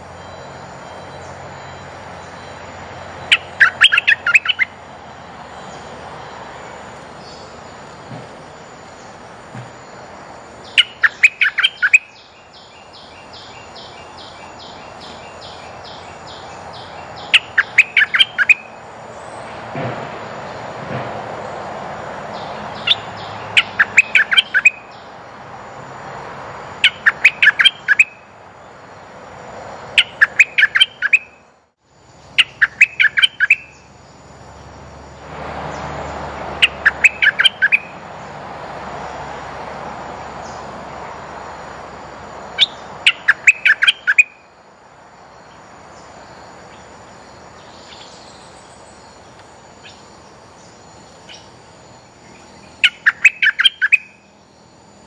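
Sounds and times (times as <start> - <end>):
bird singing sharp chirps: 0.0 - 7.6, 10.6 - 19.5, 22.3 - 25.2, 26.8 - 28.3, 29.8 - 31.5, 32.2 - 34.0, 35.7 - 38.4, 42.5 - 44.5, 47.5 - 54.7.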